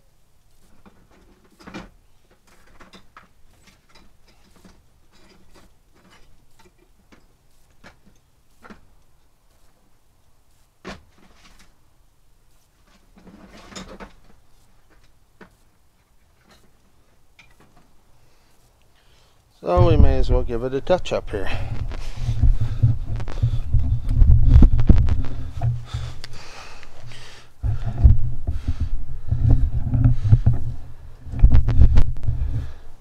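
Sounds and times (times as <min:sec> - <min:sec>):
faint clicks and knocks: 0:00.4 - 0:09.9, 0:21.6 - 0:32.8.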